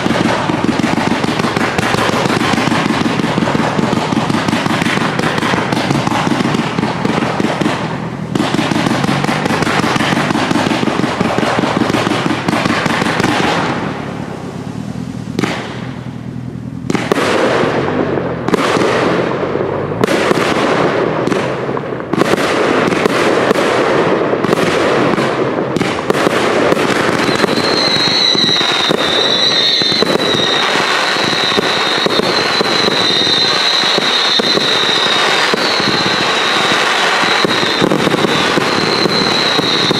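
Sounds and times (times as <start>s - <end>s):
fireworks rapid bangs: 0.0s - 16.2s, 16.8s - 39.9s
high wavering whistling: 27.2s - 39.9s.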